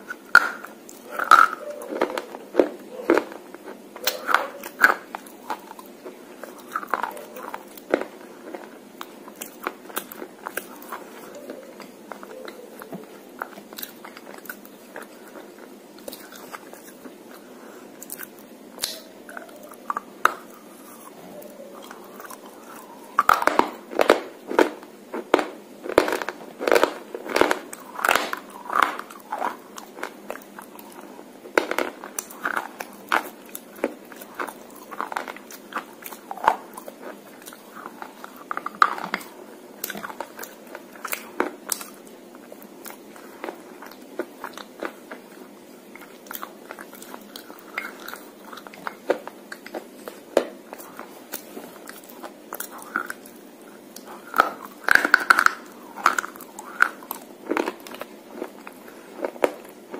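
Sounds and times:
crunchy chewing: 0:00.0 - 0:59.9.

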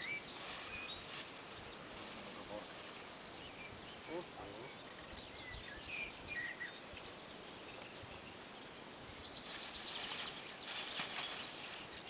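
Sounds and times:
outdoor background noise: 0:00.0 - 0:12.0
small birds chirping: 0:00.0 - 0:12.0
plastic bag rustling: 0:09.5 - 0:12.0.

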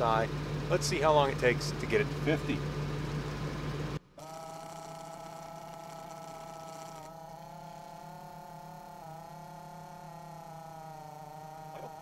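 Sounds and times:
air compressor whining: 0:00.0 - 0:12.0.

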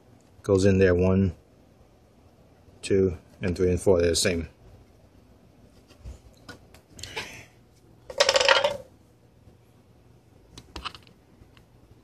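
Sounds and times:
plastic parts clattering on table: 0:08.1 - 0:08.9.

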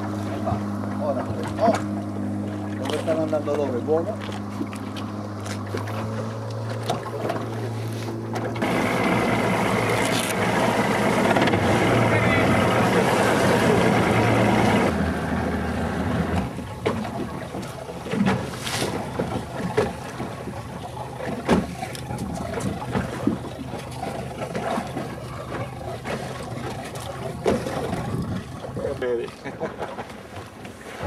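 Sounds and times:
motorboat engine: 0:00.0 - 0:31.0
waves slapping boat hull: 0:00.0 - 0:31.0
wind on microphone: 0:27.7 - 0:29.0.

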